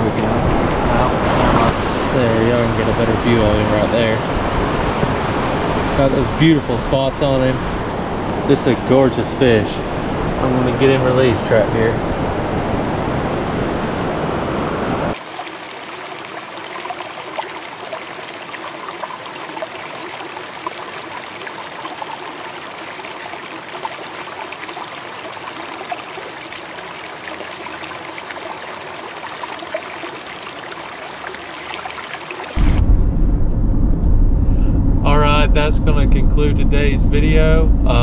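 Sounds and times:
river water rushing around hand: 15.1 - 32.6.

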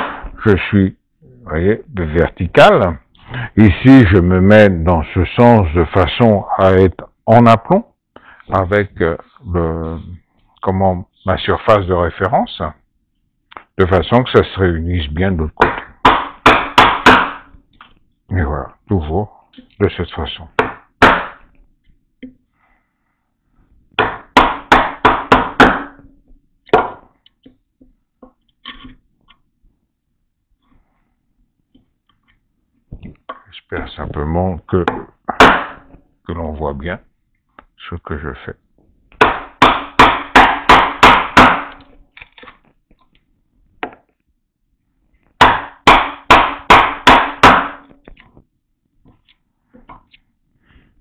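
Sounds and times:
mallet striking chisel: 0.0 - 0.4, 15.6 - 17.6, 20.6 - 21.5, 24.0 - 27.1, 34.8 - 35.8, 39.2 - 41.9, 45.4 - 48.0.

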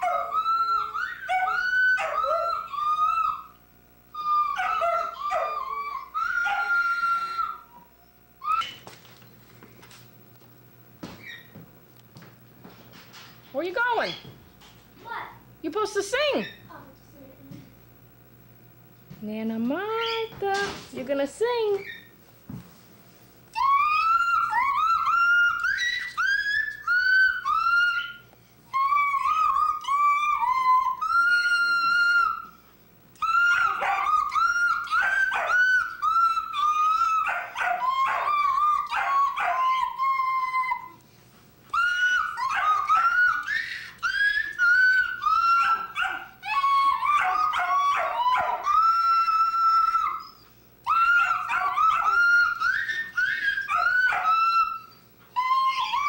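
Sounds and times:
dog howling: 0.0 - 8.8, 23.5 - 32.6, 33.2 - 41.0, 41.7 - 56.0.

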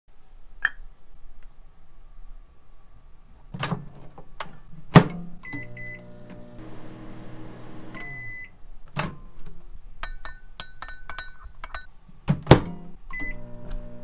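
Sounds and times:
keypad beeps: 5.5 - 6.0, 8.0 - 8.5, 13.1 - 13.4
microwave oven humming: 5.5 - 8.4, 13.2 - 14.0.

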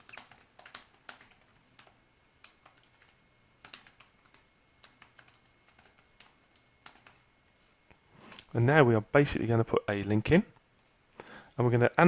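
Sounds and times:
typing on computer keyboard: 0.0 - 7.3.

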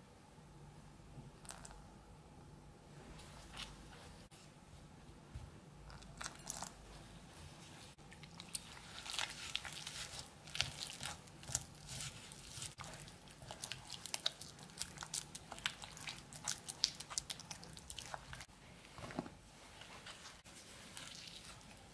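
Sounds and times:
dough squelching: 7.8 - 21.9.

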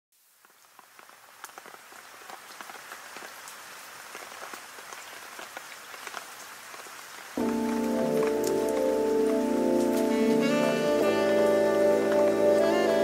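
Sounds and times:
louder raindrops: 0.1 - 13.0
rain falling: 0.2 - 13.0.

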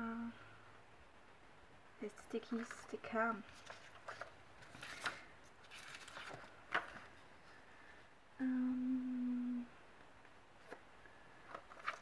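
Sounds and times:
plastic sheets crackling and rustling: 2.5 - 7.3, 11.4 - 12.0
person humming: 8.4 - 9.8.

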